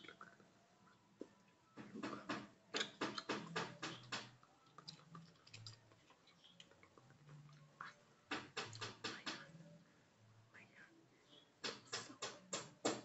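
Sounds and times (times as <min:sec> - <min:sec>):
crisp clicks and taps: 0:08.3 - 0:09.5.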